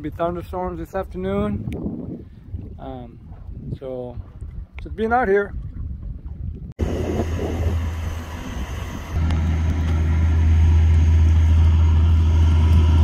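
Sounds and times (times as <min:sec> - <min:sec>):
diesel engines droning: 0:06.8 - 0:13.0.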